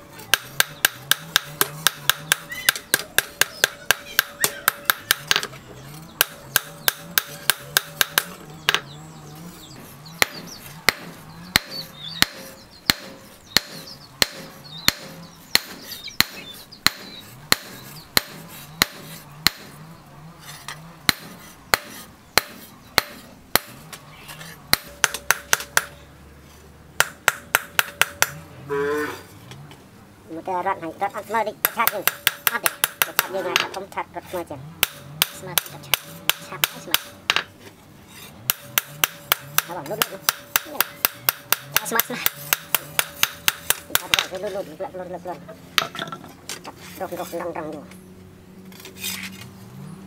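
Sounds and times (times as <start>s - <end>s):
hammer striking hot steel: 0.3s - 5.5s, 6.2s - 8.8s, 10.2s - 19.8s, 21.1s - 23.9s, 24.7s - 26.0s, 27.0s - 28.4s, 31.6s - 33.8s, 34.8s - 37.5s, 38.5s - 44.3s.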